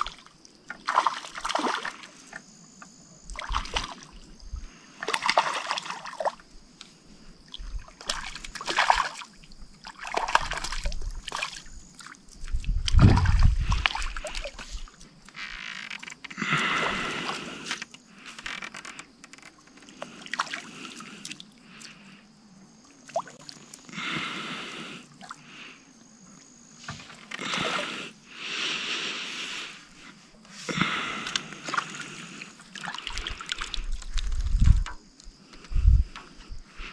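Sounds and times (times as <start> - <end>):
water splashing and sloshing: 0.0 - 24.0, 24.8 - 28.3, 29.4 - 36.9
heavy deep splash: 12.9 - 14.0.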